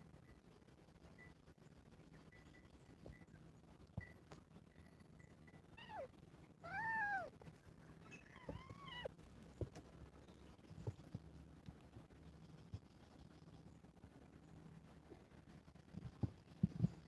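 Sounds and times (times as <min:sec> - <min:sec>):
kitten meowing: 0:05.8 - 0:07.3, 0:08.1 - 0:09.1.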